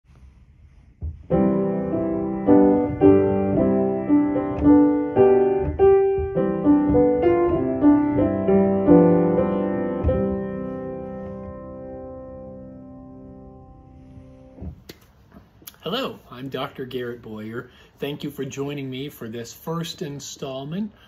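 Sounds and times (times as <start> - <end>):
slow piano melody: 1.0 - 14.7.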